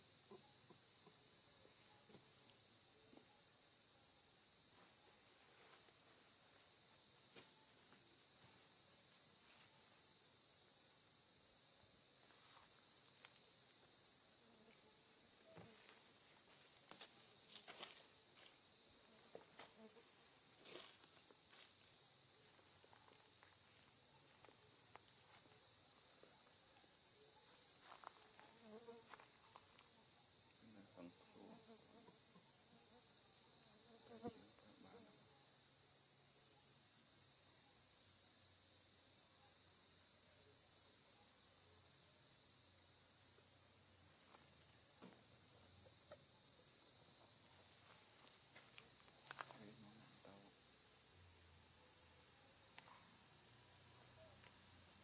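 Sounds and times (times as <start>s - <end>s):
high-pitched insect chorus: 0.0s - 55.0s
faint ticks and rustles: 12.2s - 26.6s, 43.3s - 50.4s, 52.5s - 55.0s.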